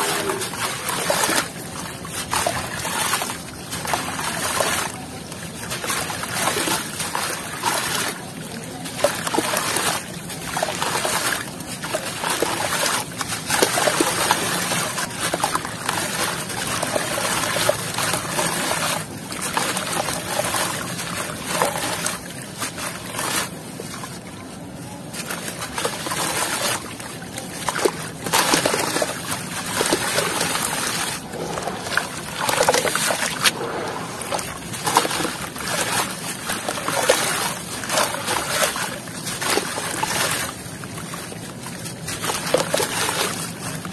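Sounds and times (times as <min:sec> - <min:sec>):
water splashing and trickling: 0:00.0 - 0:43.9
wet sand crunching: 0:29.5 - 0:36.8.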